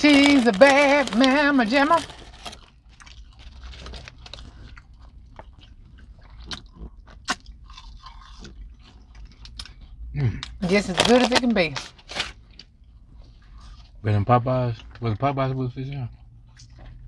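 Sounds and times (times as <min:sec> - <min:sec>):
chewing crispy food: 0:00.0 - 0:11.5, 0:12.1 - 0:17.0.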